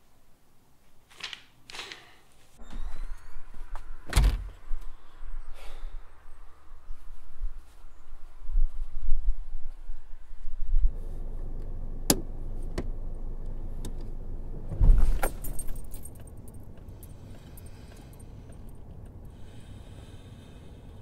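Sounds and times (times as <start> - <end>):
car keys jangling: 15.2 - 19.0.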